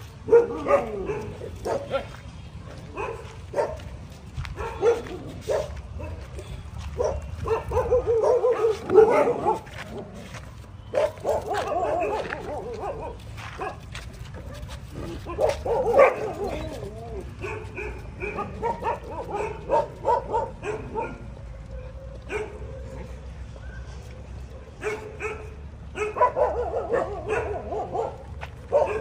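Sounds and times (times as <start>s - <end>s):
dogs barking and yipping: 0.0s - 29.0s
dogs whining: 15.0s - 21.1s.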